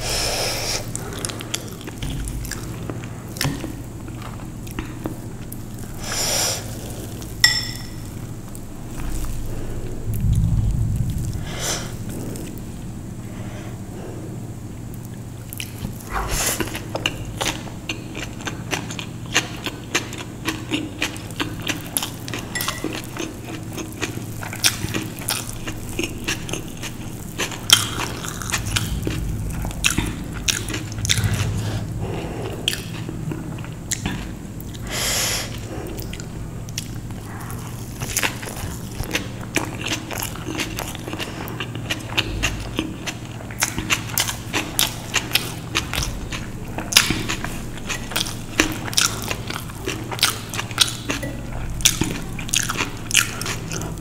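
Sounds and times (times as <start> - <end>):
person chewing crisp food: 0.5 - 10.5, 15.0 - 54.0.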